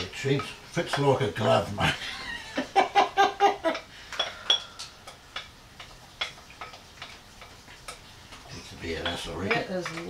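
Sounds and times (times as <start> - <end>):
spoon tapping against bowl: 0.0 - 1.3, 3.7 - 10.0
man laughing: 1.8 - 3.8.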